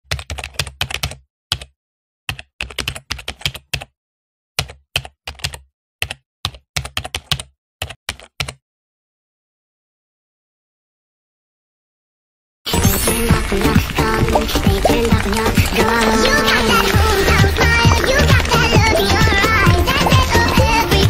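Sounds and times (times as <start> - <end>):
computer keyboard typing: 0.1 - 1.7, 2.3 - 3.9, 4.6 - 8.6, 12.9 - 21.0.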